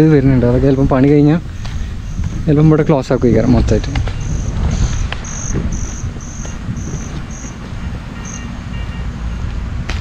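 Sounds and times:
wind rumble on microphone: 0.0 - 10.0
insect chirping: 1.5 - 3.2, 4.1 - 7.6, 8.2 - 8.5.

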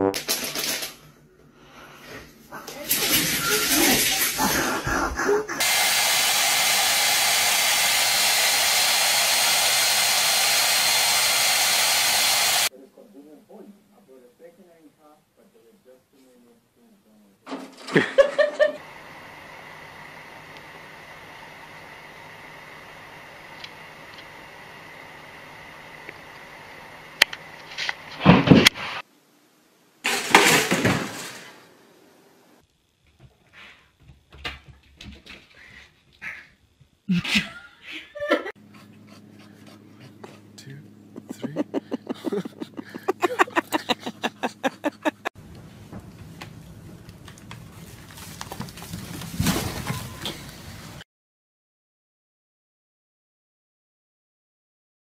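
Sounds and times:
hair dryer running: 5.6 - 12.7, 41.2 - 45.3
toaster popping up: 30.1 - 31.6.

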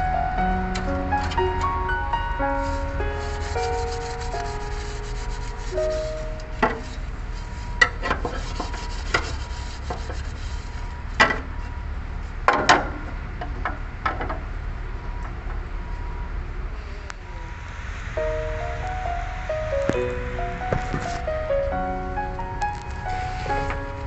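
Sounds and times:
hand scrubbing a surface: 2.6 - 11.1
sharp clicks and scrapes: 6.6 - 11.5.

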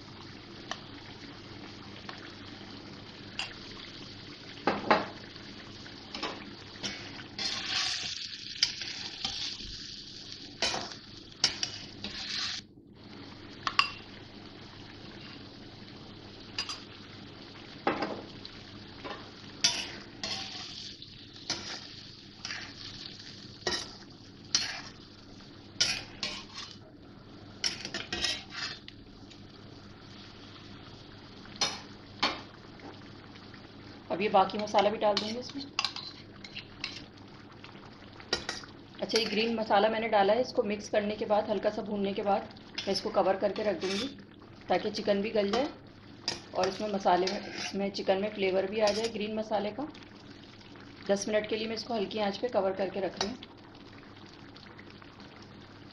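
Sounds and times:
chicken sizzling in oil: 0.0 - 55.9.

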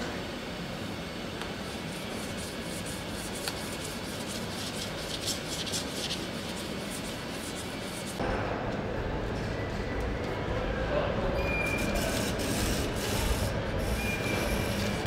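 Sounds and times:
factory hall hum: 0.0 - 15.0
scratchy rubbing strokes: 1.8 - 8.2.

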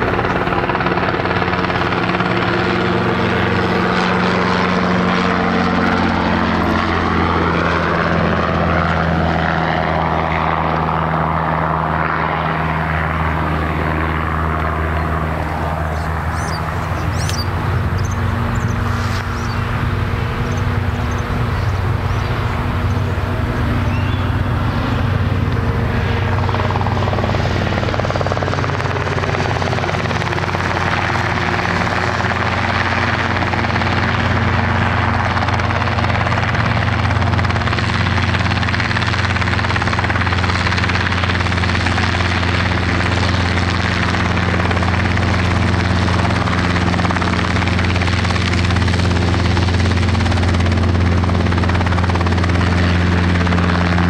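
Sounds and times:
helicopter rotor beating: 0.0 - 54.0.

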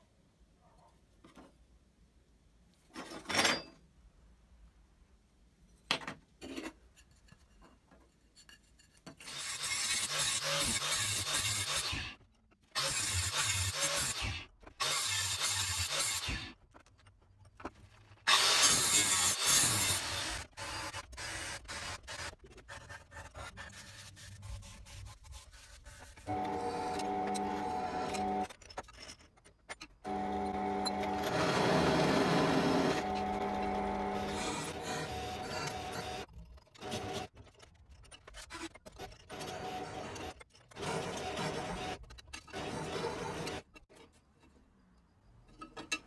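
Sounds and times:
disc grinder grinding metal: 26.3 - 28.5, 30.1 - 36.3.

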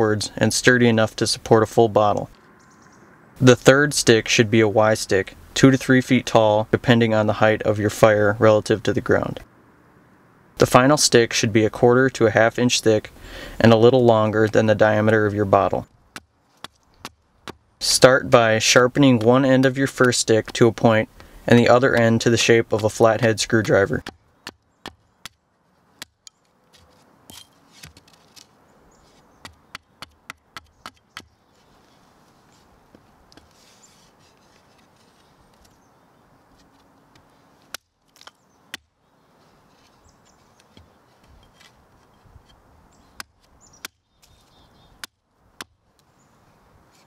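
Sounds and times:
hatchet chopping wood: 16.1 - 17.6, 20.3 - 20.6, 24.0 - 25.4, 26.0 - 26.4, 29.4 - 31.3, 37.7 - 38.9, 43.2 - 44.0, 45.0 - 45.8.

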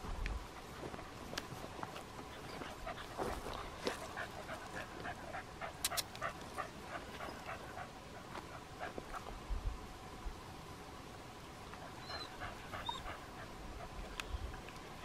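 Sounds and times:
animal panting rapidly: 2.3 - 9.3, 11.8 - 14.1.

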